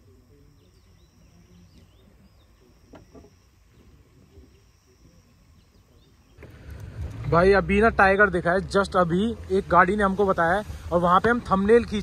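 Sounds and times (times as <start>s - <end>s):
bird chirps: 0.0s - 6.6s
high insect drone: 0.0s - 6.7s.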